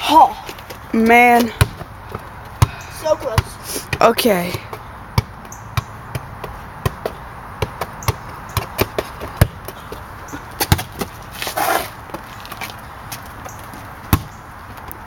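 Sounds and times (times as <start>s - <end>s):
soccer ball thuds off foot: 10.6s - 11.1s.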